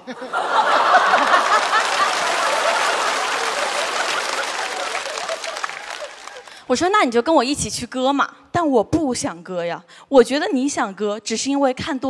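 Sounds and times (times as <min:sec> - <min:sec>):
audience laughing: 0:00.0 - 0:06.6
audience applauding: 0:00.3 - 0:06.6.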